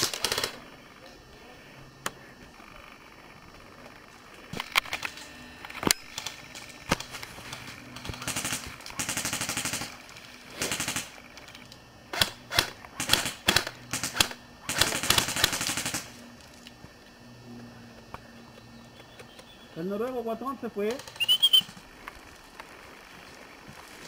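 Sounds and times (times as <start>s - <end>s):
airsoft guns firing bursts: 0.0s - 0.7s, 6.0s - 11.3s, 12.1s - 16.2s.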